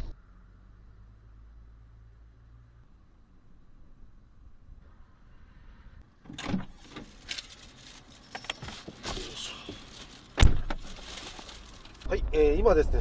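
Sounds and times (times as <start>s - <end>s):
knocks and rustles: 6.2s - 12.1s
car door shutting: 10.4s - 10.9s.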